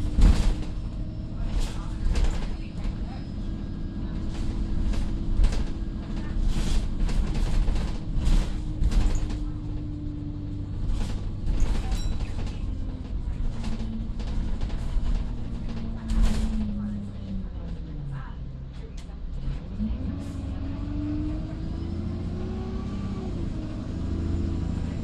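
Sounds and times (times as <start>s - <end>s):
bus diesel engine droning: 0.0s - 25.0s
seats and panels rattling: 4.3s - 10.0s.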